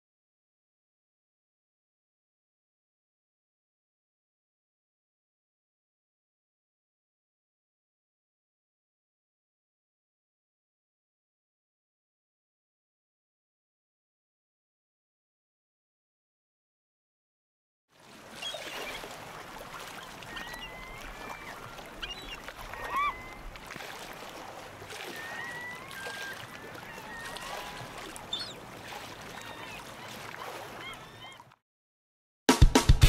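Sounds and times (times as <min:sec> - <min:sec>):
water birds calling: 0:17.9 - 0:31.6
surf washing: 0:18.0 - 0:31.4.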